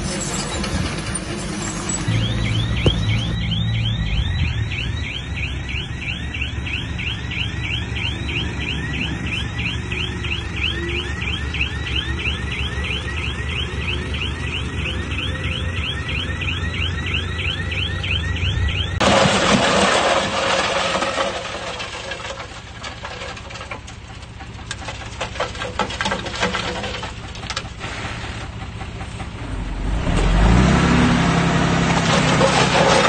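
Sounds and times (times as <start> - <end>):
diesel engine running: 0.0 - 33.0
repeating falling chirp: 2.1 - 11.0.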